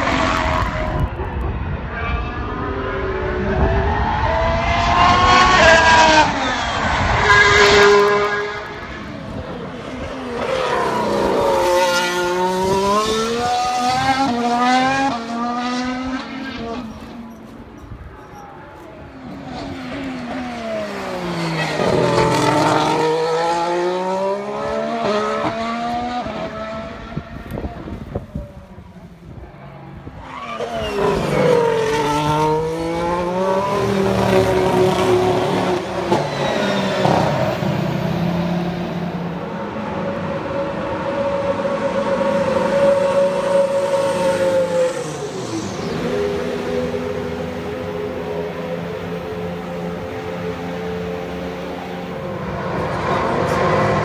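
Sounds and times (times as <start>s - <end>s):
racing car engine passing: 18.5s - 28.9s, 29.6s - 54.0s.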